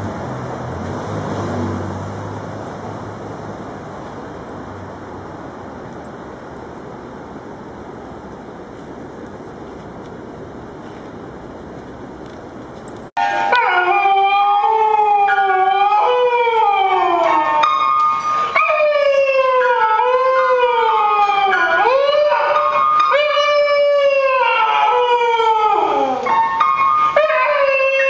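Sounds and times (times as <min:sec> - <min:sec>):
piano notes: 0:13.2 - 0:14.3, 0:17.1 - 0:18.5, 0:26.2 - 0:27.6
dog howling: 0:13.5 - 0:17.8, 0:18.4 - 0:26.3.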